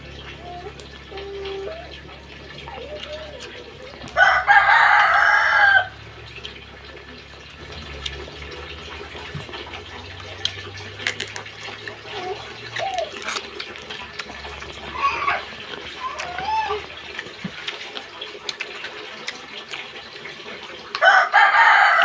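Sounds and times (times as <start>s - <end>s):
wet chewing: 0.6s - 22.0s
rooster crowing: 4.2s - 6.0s, 21.0s - 22.0s.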